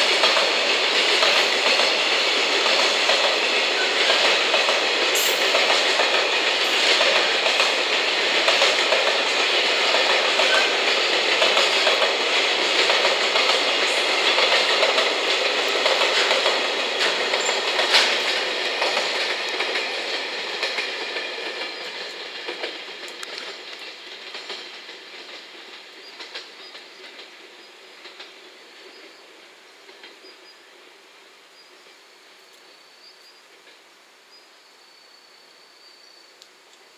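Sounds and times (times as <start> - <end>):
freight train clattering over rail joints: 0.0 - 29.2
wheel-on-rail noise: 0.0 - 30.5.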